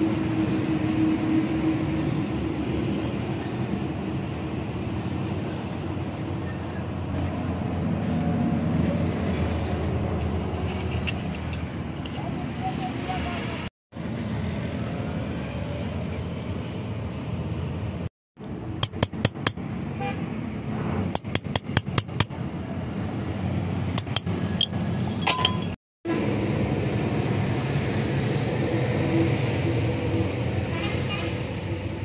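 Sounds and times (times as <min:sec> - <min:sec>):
background traffic: 0:00.0 - 0:32.0
metal parts clinking on metal: 0:24.0 - 0:25.8.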